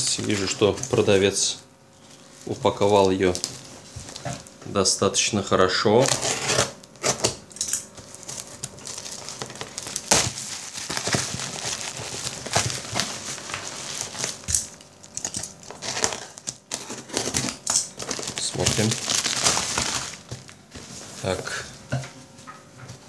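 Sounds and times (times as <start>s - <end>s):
plastic bag crinkling: 0.0s - 4.6s, 7.8s - 21.4s.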